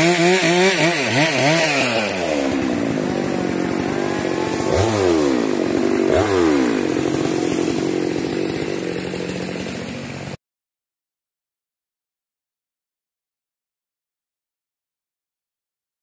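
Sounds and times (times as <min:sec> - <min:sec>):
chainsaw running: 0:00.0 - 0:10.4.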